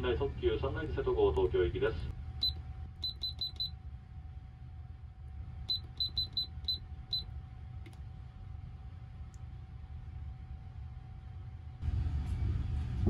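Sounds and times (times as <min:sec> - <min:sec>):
click: 0:02.4 - 0:03.7, 0:07.8 - 0:08.0, 0:09.3 - 0:09.5
keypad beeps: 0:02.4 - 0:03.7, 0:05.7 - 0:07.2
train rumble: 0:10.9 - 0:13.0.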